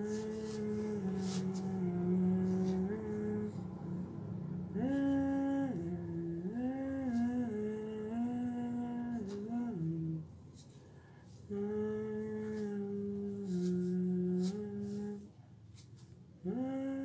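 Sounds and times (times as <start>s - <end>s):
person humming: 0.0s - 3.8s, 4.8s - 10.3s, 11.5s - 15.3s, 16.4s - 17.0s.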